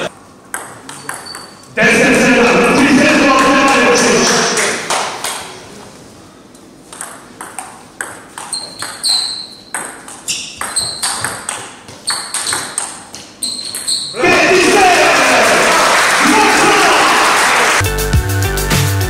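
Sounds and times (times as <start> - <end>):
table tennis ball clicking: 6.9 - 13.9.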